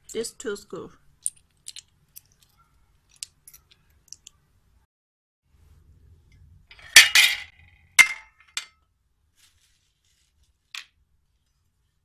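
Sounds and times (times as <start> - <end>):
metal poles clinking: 6.7 - 8.8.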